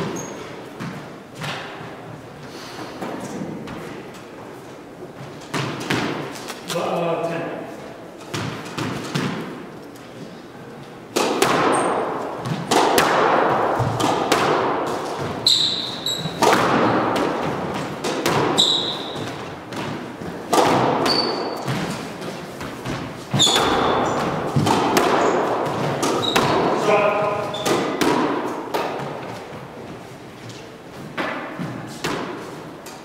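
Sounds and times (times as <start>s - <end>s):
shoes squeaking on wooden floor: 0.0s - 1.0s, 14.9s - 16.5s, 17.3s - 20.4s, 21.0s - 27.9s
squash ball hitting rackets and walls: 0.0s - 7.0s, 8.0s - 10.0s, 10.8s - 33.0s.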